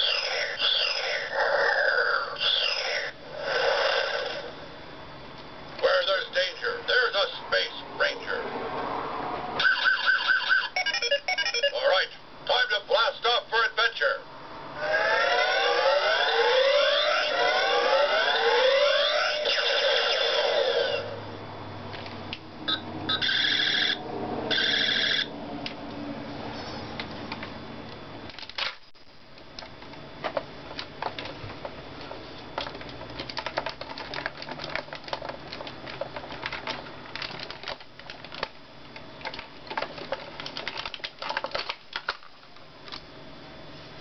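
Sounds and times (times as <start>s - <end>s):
toy electronic sound effects: 0.0s - 4.5s, 9.6s - 12.9s, 14.8s - 21.2s, 22.7s - 25.3s.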